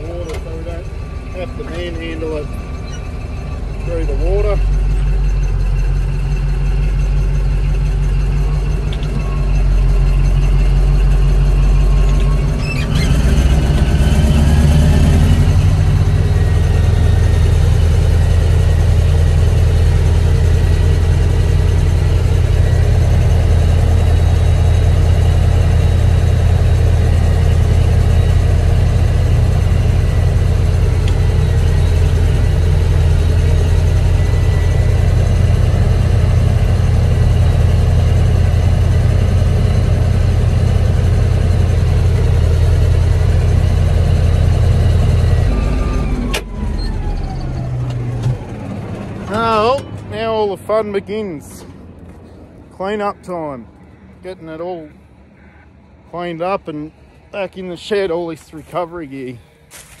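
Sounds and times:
faint high whine: 0:00.0 - 0:12.9
bulldozer diesel engine running: 0:00.0 - 1:00.0.

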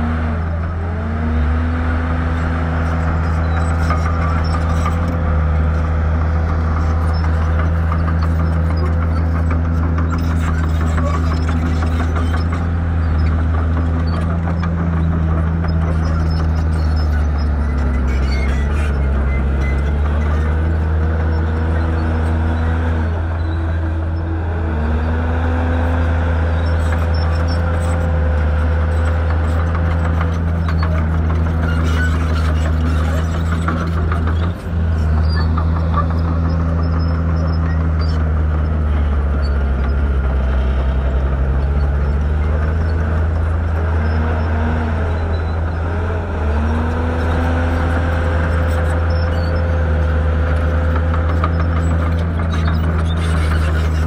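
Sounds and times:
diesel engine revving: 0:00.0 - 0:54.0.

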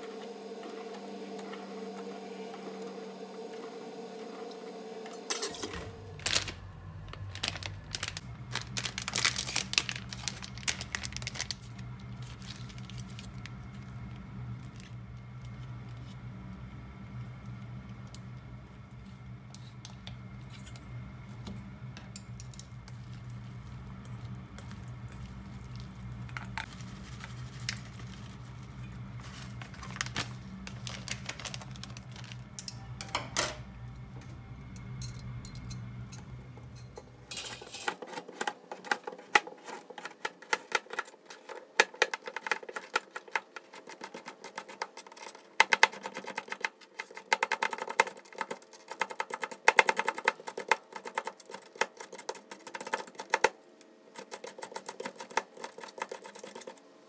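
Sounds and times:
low hum: 0:00.0 - 0:37.7.

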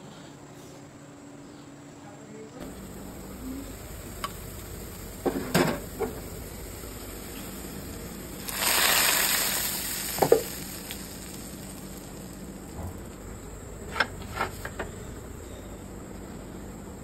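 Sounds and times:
loud oil sizzle: 0:02.6 - 0:13.9
pan knocking: 0:10.1 - 0:10.6.

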